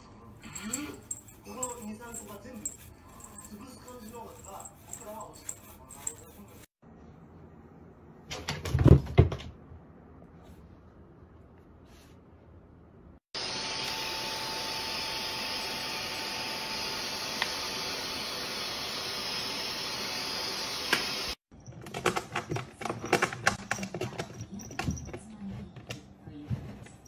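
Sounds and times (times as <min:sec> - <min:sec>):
stick vacuum cleaner running: 0:13.4 - 0:21.4.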